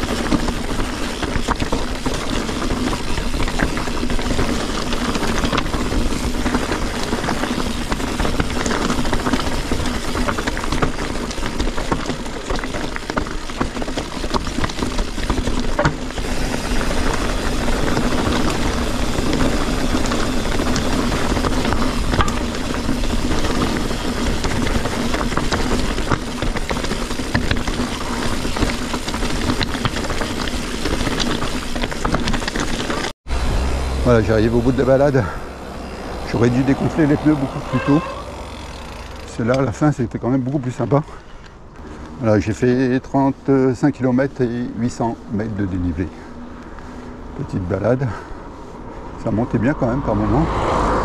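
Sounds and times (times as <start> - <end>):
bike rattling over stones: 0.0 - 51.0
tyre and trail noise: 0.0 - 51.0.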